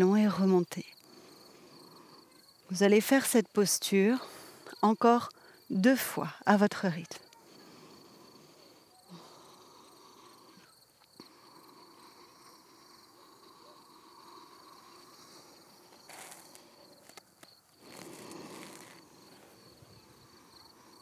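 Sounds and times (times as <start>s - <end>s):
insect chirping: 0.0s - 21.0s
short rustling noises: 15.9s - 19.4s.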